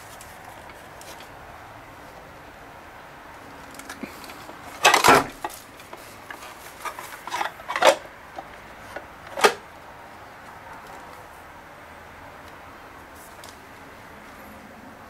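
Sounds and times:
plastic clatter and clicks: 3.7s - 9.6s
plastic receptacle sliding: 4.2s - 9.6s.

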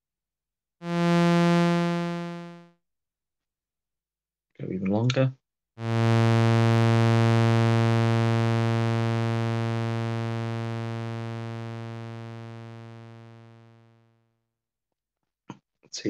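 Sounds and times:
low buzzy synthesizer note: 0.8s - 2.7s, 5.8s - 14.0s.

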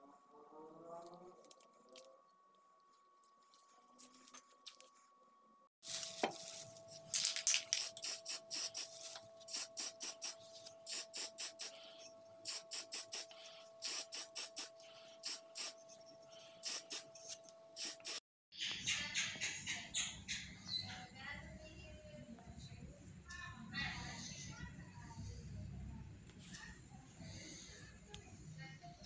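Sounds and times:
spray paint can hissing: 7.1s - 15.8s, 16.6s - 18.2s.

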